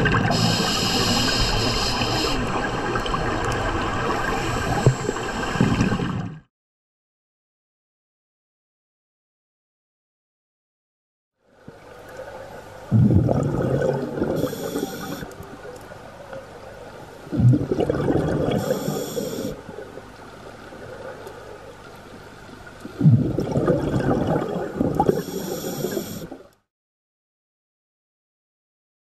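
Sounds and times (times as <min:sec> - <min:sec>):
exhaled bubbles underwater: 0:00.0 - 0:06.5, 0:11.6 - 0:21.7, 0:22.7 - 0:26.5
regulator hiss: 0:00.3 - 0:03.0, 0:14.4 - 0:15.3, 0:18.6 - 0:19.6, 0:25.1 - 0:26.4.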